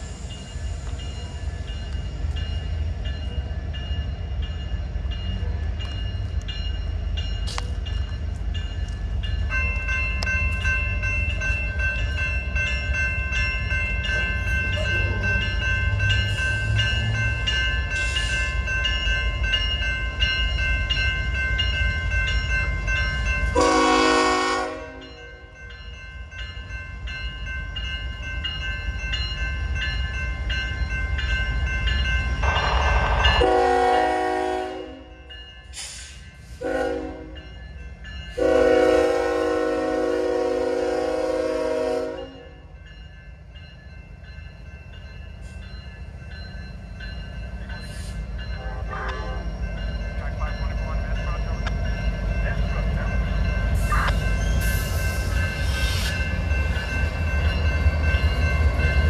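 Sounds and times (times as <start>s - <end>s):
railroad crossing bells ringing: 0.0s - 59.0s
train horn blast: 23.6s - 25.2s, 33.4s - 35.1s, 36.6s - 37.4s, 38.4s - 42.5s, 48.6s - 49.5s.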